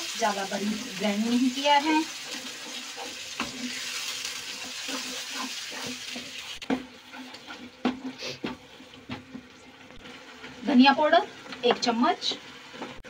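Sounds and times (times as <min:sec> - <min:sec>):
masala sizzling in hot oil: 0:00.0 - 0:13.0
wooden spatula scraping pan: 0:00.6 - 0:10.8.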